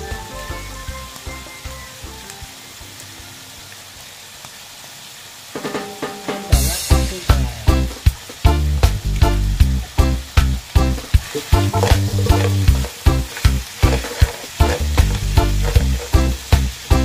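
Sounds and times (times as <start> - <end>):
background music with beat: 0.0 - 2.6, 5.6 - 17.0
chicken sizzling in a pan: 0.0 - 17.0
spatula turning food in pan: 9.9 - 17.0.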